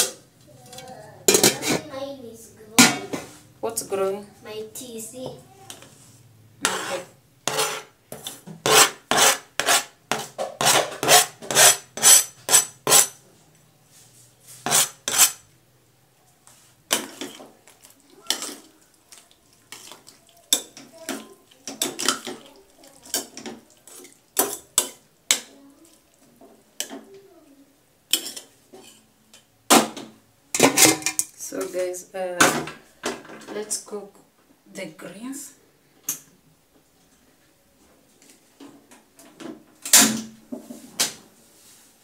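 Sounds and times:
spoon clinking and scraping in pot: 6.6 - 13.2, 14.6 - 15.5, 16.9 - 25.5, 28.1 - 29.1.

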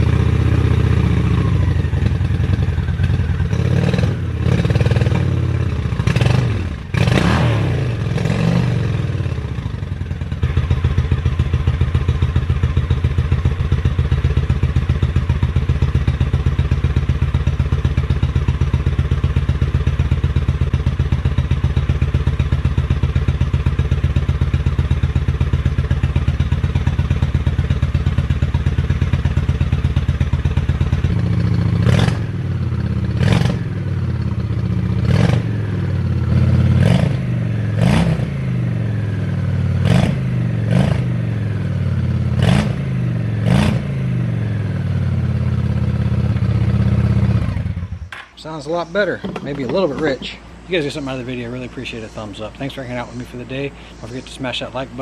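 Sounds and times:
motorcycle engine idling and revving: 0.0 - 55.0
man talking: 48.4 - 55.0.

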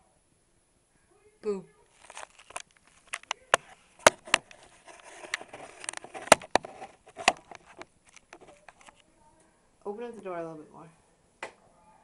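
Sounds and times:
rustling: 1.8 - 9.2
camera handling clicks and knocks: 4.0 - 4.6, 5.2 - 9.0.

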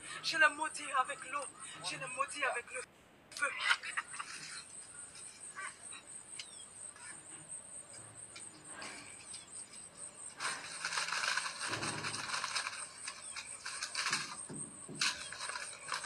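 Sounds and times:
scratching on dry leaves: 8.8 - 16.0.

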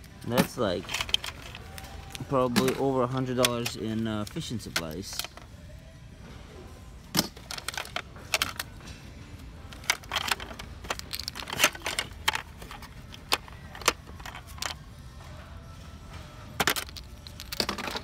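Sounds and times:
fishing tackle clicking and rattling: 0.4 - 5.4, 9.7 - 14.8, 16.6 - 18.0.

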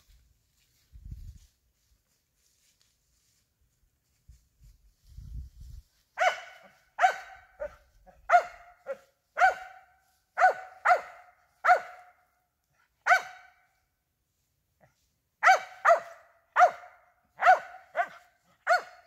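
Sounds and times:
dog barking: 6.2 - 13.7, 15.4 - 19.0.

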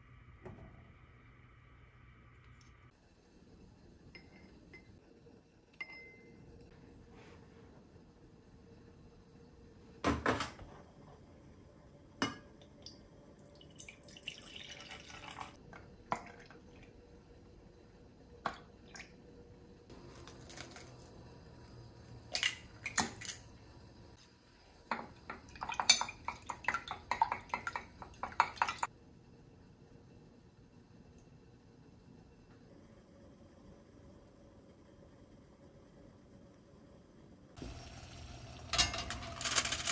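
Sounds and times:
dishes and utensils clinking: 38.7 - 39.8.

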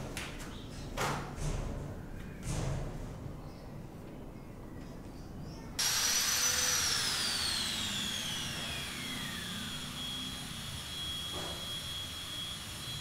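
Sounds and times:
power tool motor whine: 5.8 - 13.0.

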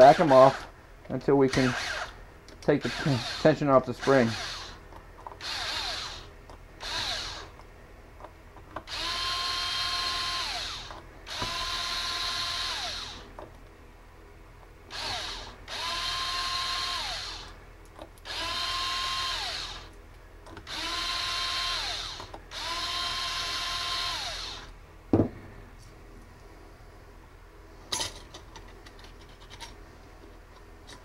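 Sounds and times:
cordless driver whining: 0.0 - 0.7, 1.5 - 4.8, 5.4 - 7.6, 8.8 - 13.3, 14.9 - 17.6, 18.2 - 20.0, 20.6 - 24.7.

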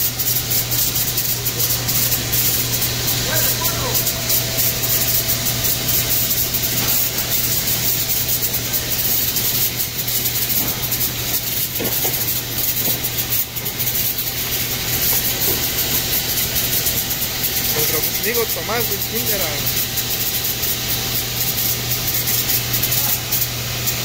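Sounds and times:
low motor hum: 0.0 - 11.8
machinery hiss: 0.0 - 24.0.

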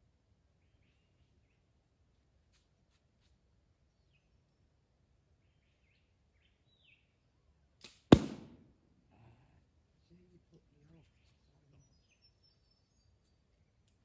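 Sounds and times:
faint bird chirps: 0.5 - 3.0, 9.2 - 14.0
arrow striking cardboard target: 7.8 - 8.6.

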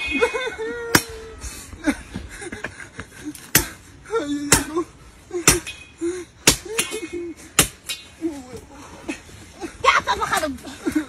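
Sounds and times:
blade chopping tree trunk: 3.5 - 3.8.

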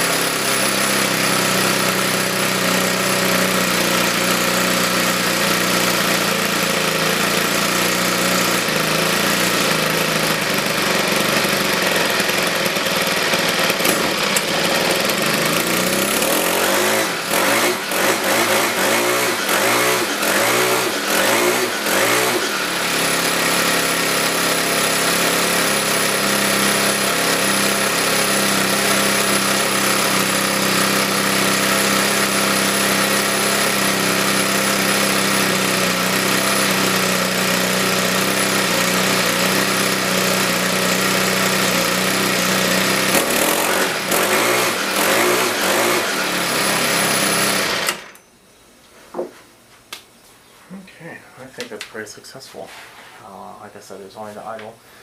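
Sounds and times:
string trimmer engine running: 0.0 - 48.3.

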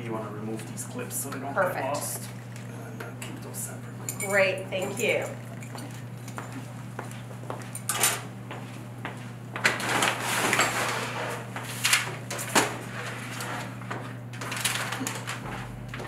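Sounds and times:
faint steady hum: 0.0 - 9.7
rustling and scraping: 9.7 - 15.8.

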